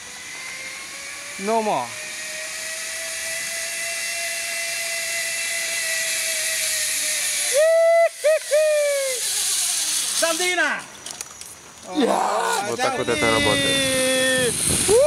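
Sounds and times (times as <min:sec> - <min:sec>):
zipline trolley hissing on cable: 0:00.0 - 0:15.0
person whooping yell: 0:07.6 - 0:09.2, 0:11.9 - 0:15.0.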